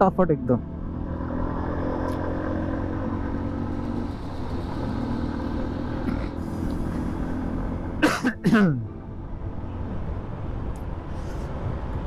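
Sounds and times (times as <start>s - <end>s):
wind and road noise: 0.0s - 12.0s
motorcycle engine running: 0.7s - 8.0s.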